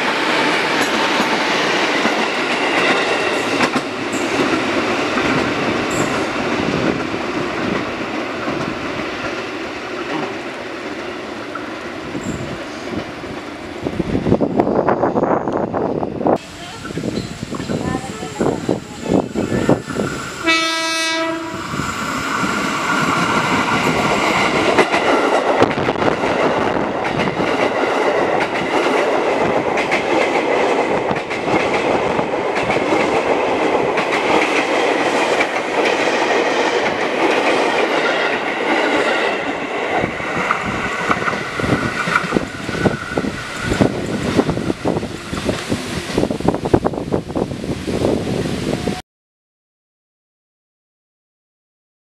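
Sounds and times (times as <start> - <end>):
train wheels rushing on rail: 0.0 - 49.0
train horn blast: 20.4 - 21.6.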